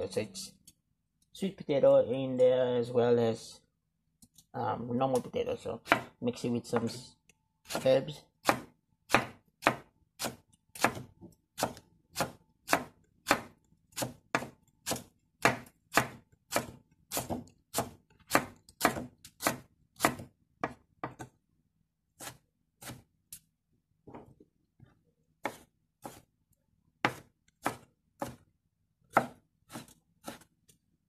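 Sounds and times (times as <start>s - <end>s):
knife chopping on wooden board: 5.8s - 7.0s, 8.4s - 21.4s, 22.2s - 23.1s, 25.4s - 26.3s, 27.0s - 28.5s, 29.1s - 30.5s.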